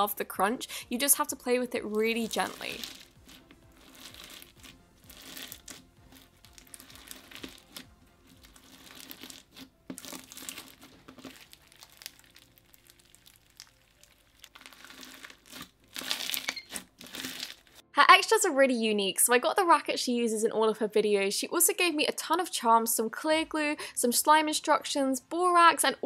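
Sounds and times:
crunchy bead slime crackling: 0:01.9 - 0:17.8.

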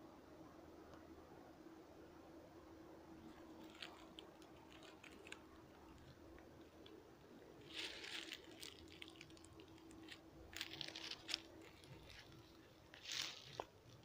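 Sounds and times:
faint steady hum: 0:00.0 - 0:14.0
footsteps crunching dry leaves: 0:07.6 - 0:14.0.

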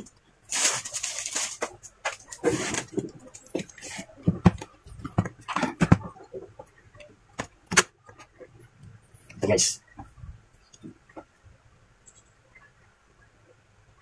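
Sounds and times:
handling noise scraping rustle: 0:00.5 - 0:04.4.

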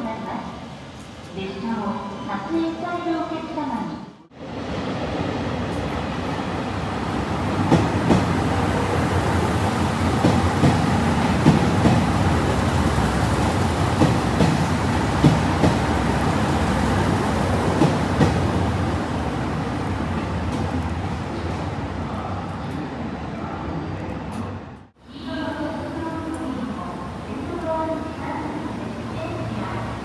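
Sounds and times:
train rumbling past: 0:04.3 - 0:24.7.

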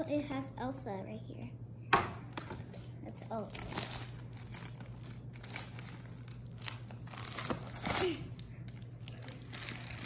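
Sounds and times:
plastic bag crinkling: 0:03.4 - 0:10.0.

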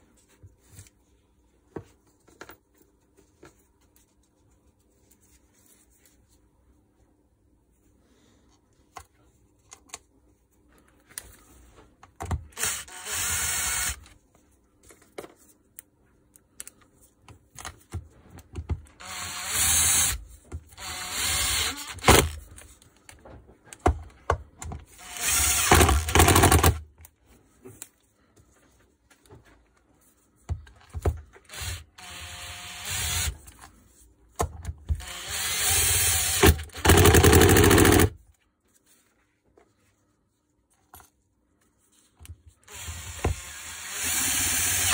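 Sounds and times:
cordless driver running: 0:25.0 - 0:26.8, 0:35.0 - 0:38.1.

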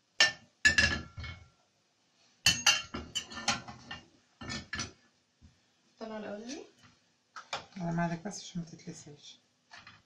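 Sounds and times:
metal utensils clattering on grill pan: 0:00.2 - 0:01.4, 0:02.5 - 0:05.0.

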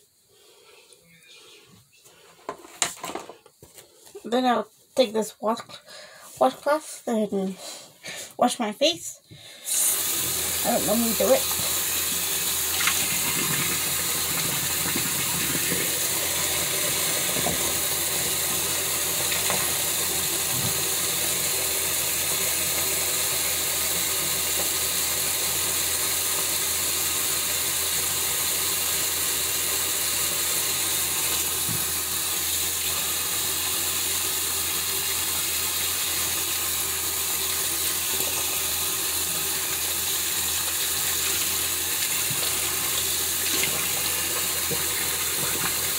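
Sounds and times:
tap running into sink: 0:12.6 - 0:21.5, 0:31.3 - 0:32.1, 0:41.1 - 0:45.9.

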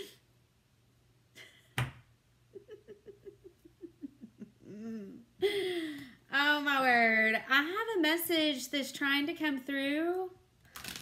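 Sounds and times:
woman giggling: 0:01.4 - 0:01.8, 0:02.5 - 0:06.1.

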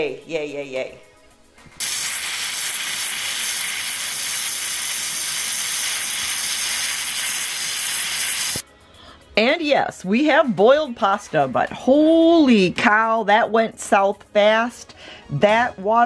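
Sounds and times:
pressure cooker steam hiss: 0:01.8 - 0:08.6.

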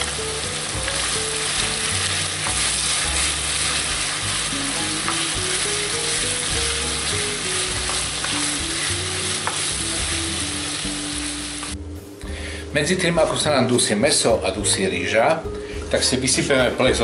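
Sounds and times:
meat sizzling in a frying pan: 0:00.0 - 0:11.8.

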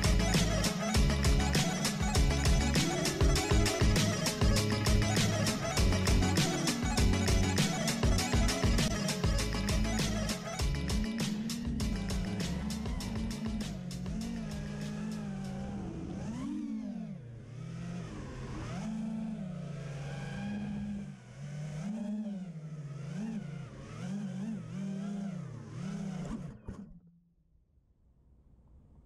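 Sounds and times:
quadcopter motors whining: 0:00.0 - 0:26.9.

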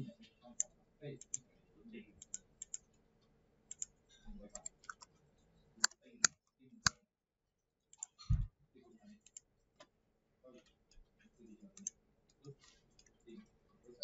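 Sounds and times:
mouse and keyboard clicks: 0:02.2 - 0:02.9, 0:03.7 - 0:05.1.

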